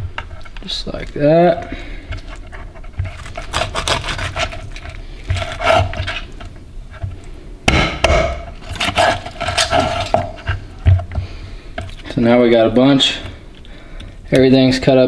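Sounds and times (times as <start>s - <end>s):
knife chopping on wooden board: 3.2s - 4.6s, 7.7s - 10.3s.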